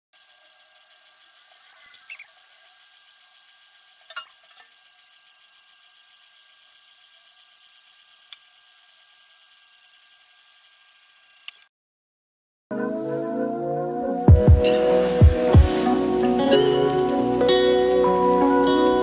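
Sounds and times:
laser engraver whine: 0.2s - 11.6s.

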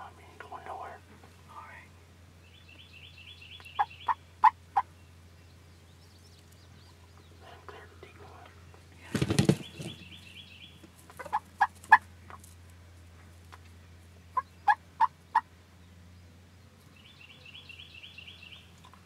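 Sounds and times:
turkey gobbling: 3.7s - 4.9s, 11.1s - 12.1s, 14.3s - 15.5s
turkey yelps: 11.2s - 12.0s, 14.4s - 15.5s.

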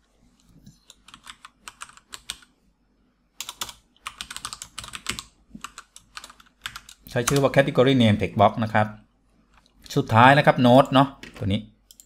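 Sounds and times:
computer keyboard typing: 0.8s - 2.5s, 3.4s - 7.6s, 11.3s - 12.0s.

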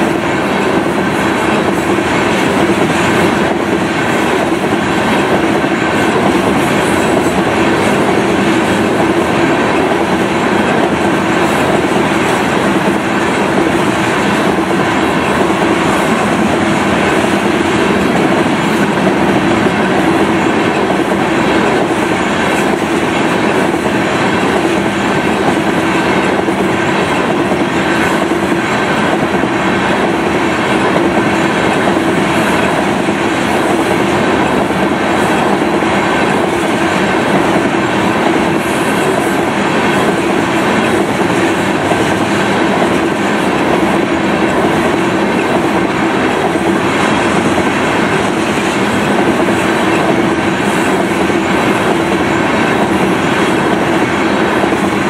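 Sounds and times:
train wheels clacking on rails: 0.0s - 55.0s.

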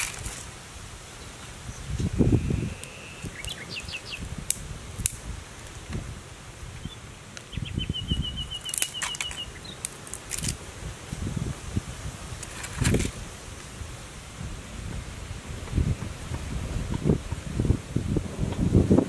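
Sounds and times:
twigs snapping: 0.0s - 0.5s, 2.8s - 6.0s, 8.6s - 10.6s
small birds chirping: 1.1s - 4.3s, 6.7s - 10.2s.

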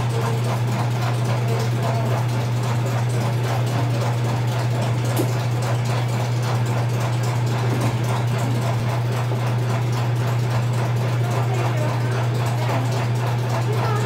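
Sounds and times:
low hum of machinery: 0.0s - 14.0s.

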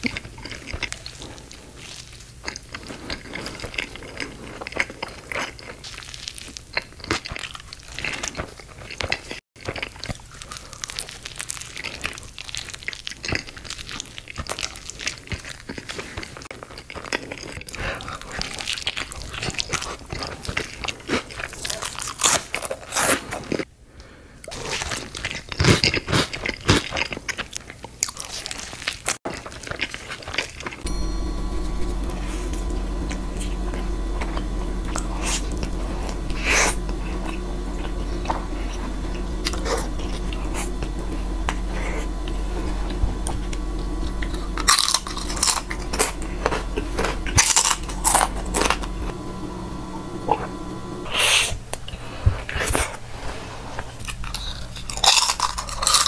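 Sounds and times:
steady low hum: 30.8s - 51.9s.

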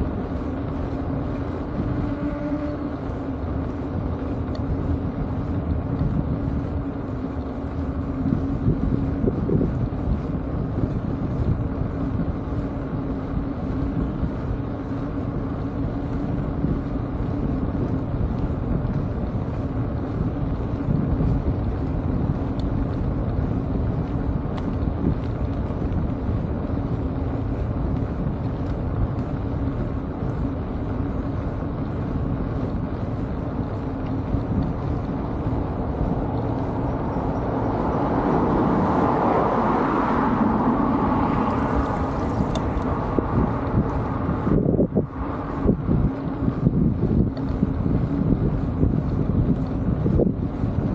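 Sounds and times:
road rumble from bike: 0.0s - 50.9s
wind buffeting microphone: 0.0s - 50.9s
car passing by: 35.7s - 45.9s.

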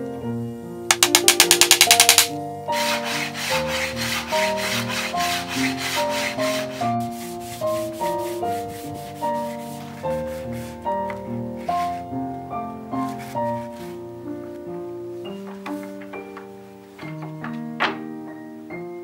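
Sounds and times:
light piano music: 0.0s - 19.0s
rapid sharp ticks: 0.9s - 2.3s
sandpaper rubbing on wood: 2.1s - 10.9s.

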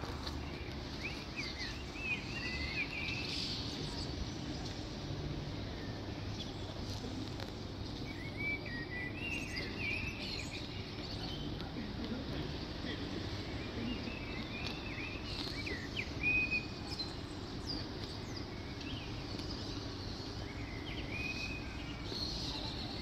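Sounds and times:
low outdoor rumble: 0.0s - 23.0s.

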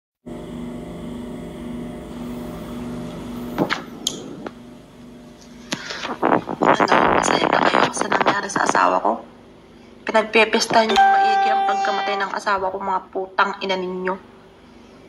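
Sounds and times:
steady machine hum: 10.8s - 13.2s.

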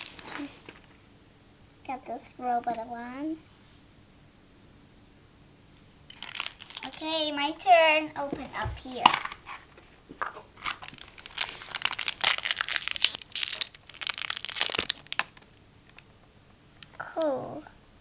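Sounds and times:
foil wrapper crinkling and tearing: 0.0s - 0.5s, 6.1s - 7.3s, 10.6s - 16.0s.

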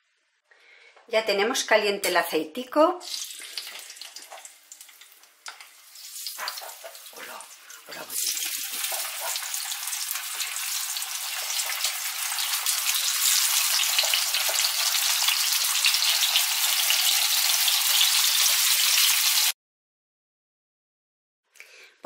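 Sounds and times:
meat sizzling in hot oil: 3.0s - 19.6s.

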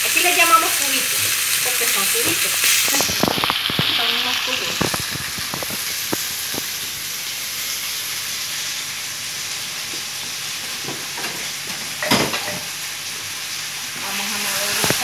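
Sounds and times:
meat sizzling in a frying pan: 0.0s - 15.0s
cookware clattering: 10.8s - 12.8s.

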